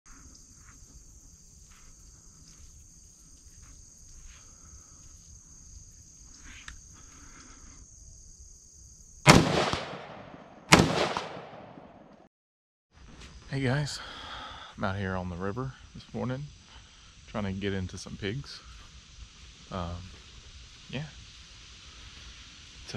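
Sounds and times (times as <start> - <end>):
gunshots with echo: 9.3 - 12.2.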